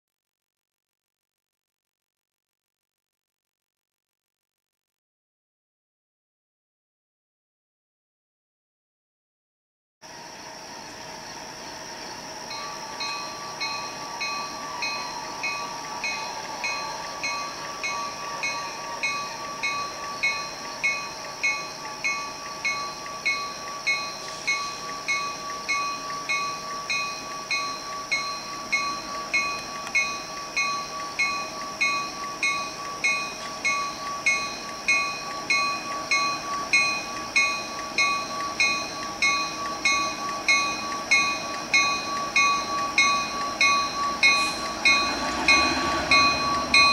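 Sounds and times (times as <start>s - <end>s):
steady high hum: 10.0s - 46.9s
locomotive bell ringing: 12.1s - 46.9s.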